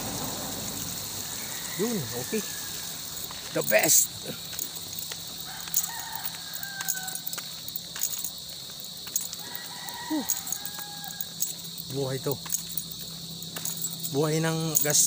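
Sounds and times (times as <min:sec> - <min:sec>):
distant rooster crowing: 0:00.0 - 0:03.3, 0:05.2 - 0:07.5, 0:09.2 - 0:11.8
crickets chirring: 0:00.0 - 0:15.0.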